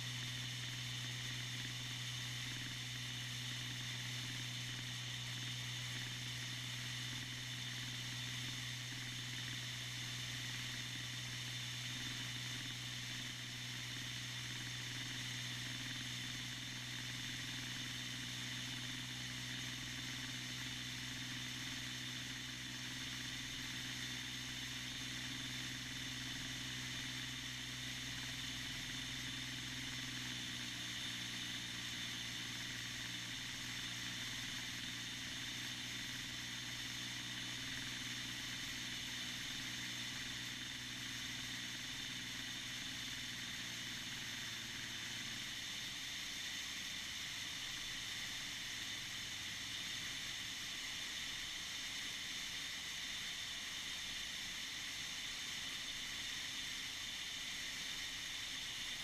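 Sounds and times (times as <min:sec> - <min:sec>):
aircraft engine and propeller: 0:00.0 - 0:59.0.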